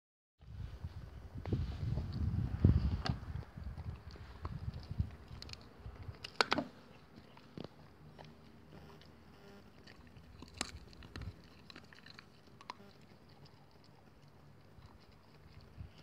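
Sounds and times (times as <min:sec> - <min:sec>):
dog gnawing wooden stick: 0:02.0 - 0:16.0
wood cracking and crunching: 0:09.8 - 0:13.1.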